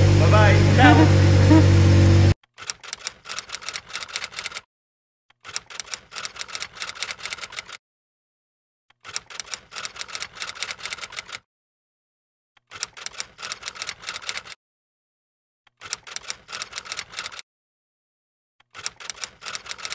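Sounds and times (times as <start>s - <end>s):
typewriter keys clacking: 2.6s - 4.6s, 5.4s - 7.8s, 9.0s - 11.4s, 12.7s - 14.6s, 15.8s - 17.4s, 18.7s - 19.9s.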